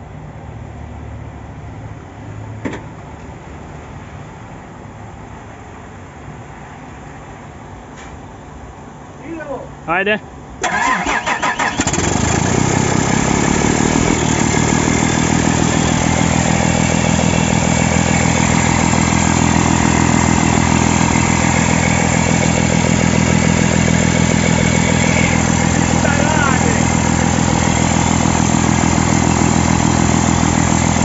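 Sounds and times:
diesel engine running: 0:10.6 - 0:31.0.

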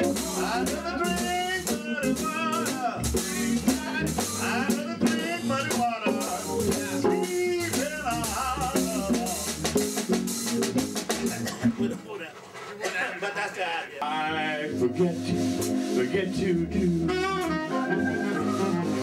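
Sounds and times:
drum kit cymbals: 0:00.0 - 0:11.9, 0:15.0 - 0:19.0
organ chords: 0:00.0 - 0:11.9, 0:14.0 - 0:19.0
saxophone melody: 0:14.0 - 0:19.0.

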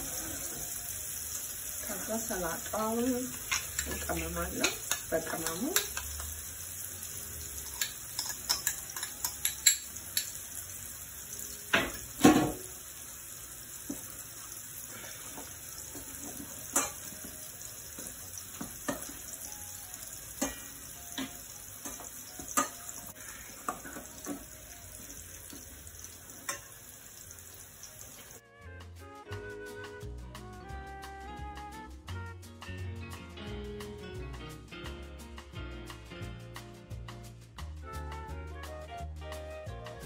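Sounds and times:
cutlery clinking in metal bowl: 0:03.2 - 0:06.4, 0:07.6 - 0:10.5, 0:15.9 - 0:17.4, 0:18.0 - 0:19.3, 0:20.4 - 0:24.6, 0:26.4 - 0:26.8.

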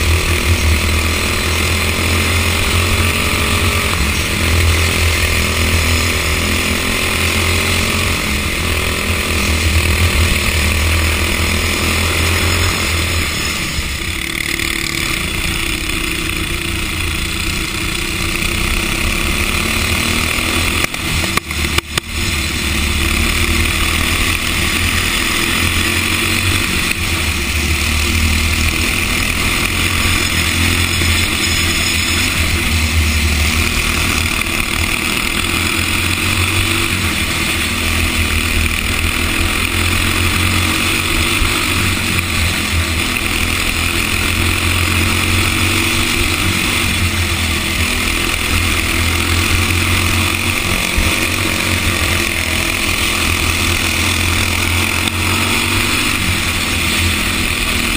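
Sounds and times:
go-kart engine droning: 0:00.0 - 0:57.9.

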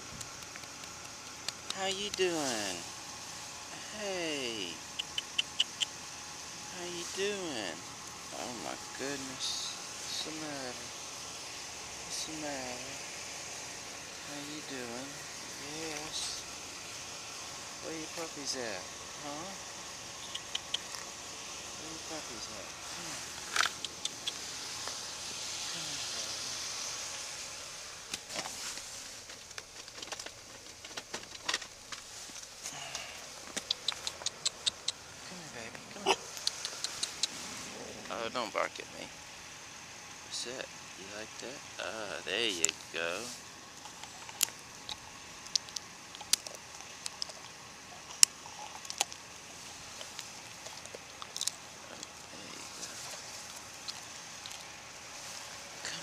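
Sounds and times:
rustling hiss: 0:00.0 - 0:56.0
dog crunching food on gravel: 0:00.1 - 0:01.8, 0:23.3 - 0:25.0, 0:43.8 - 0:54.8.

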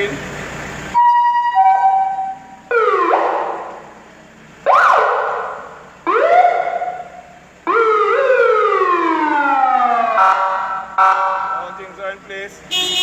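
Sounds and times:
ambulance siren blasts: 0:01.0 - 0:04.0, 0:04.6 - 0:11.8.

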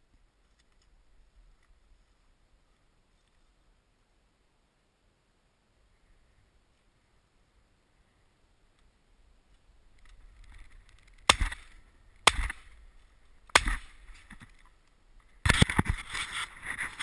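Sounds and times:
shotgun shots: 0:13.6 - 0:14.0.

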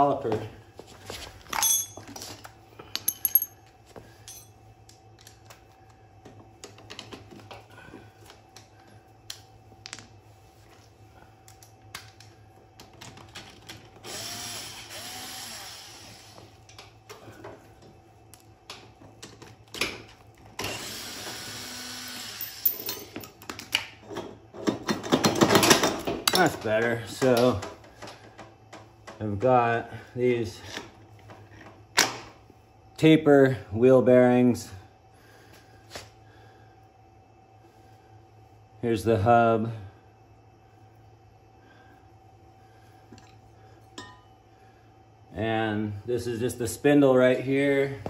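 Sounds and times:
tools and metal parts clicking: 0:01.5 - 0:04.5, 0:22.4 - 0:26.6
cordless drill running: 0:14.0 - 0:16.4, 0:20.6 - 0:22.6.

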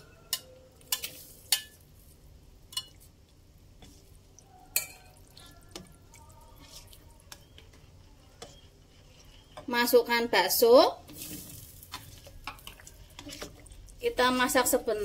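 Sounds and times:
spoon clinking against pan: 0:00.0 - 0:01.8, 0:04.6 - 0:06.0
spoon stirring broth: 0:00.0 - 0:15.0.

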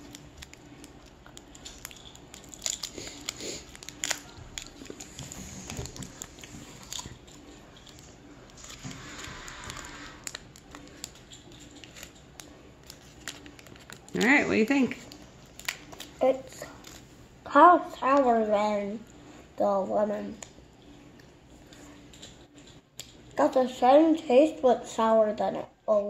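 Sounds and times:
candy wrapper crinkling: 0:00.0 - 0:17.1.

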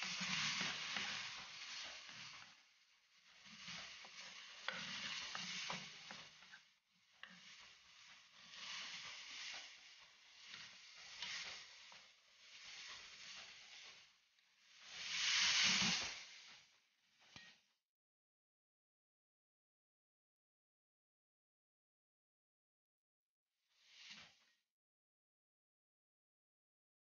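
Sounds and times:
wooden spatula scraping a pan: 0:00.0 - 0:17.6
food sizzling in a wok: 0:00.0 - 0:17.7, 0:23.8 - 0:24.6.

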